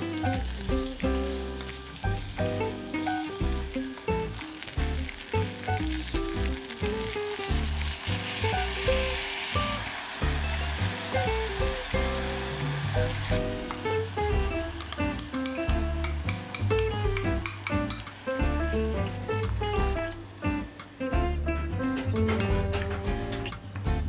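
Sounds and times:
rice sizzling in butter: 0:00.0 - 0:20.8
background music with bass line: 0:00.0 - 0:24.0.

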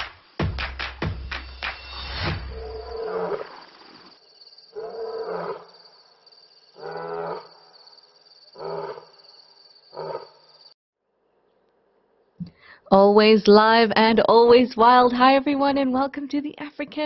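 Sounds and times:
lion roaring: 0:02.5 - 0:03.6, 0:08.6 - 0:09.0.

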